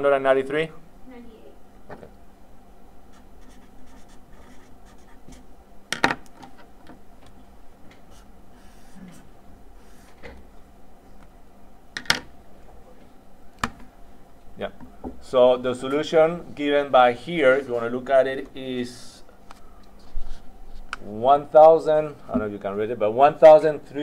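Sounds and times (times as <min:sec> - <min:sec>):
marker pen scratching on paper: 0:03.1 - 0:05.4.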